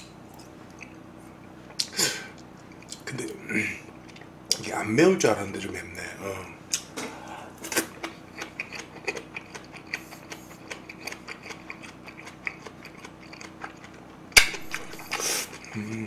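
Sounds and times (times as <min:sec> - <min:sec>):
wet chewing mouth clicks: 0:07.8 - 0:14.0.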